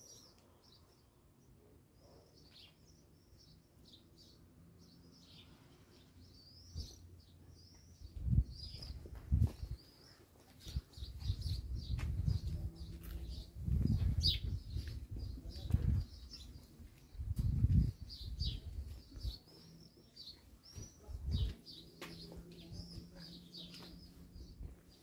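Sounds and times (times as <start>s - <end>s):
small birds chirping: 0.0s - 25.0s.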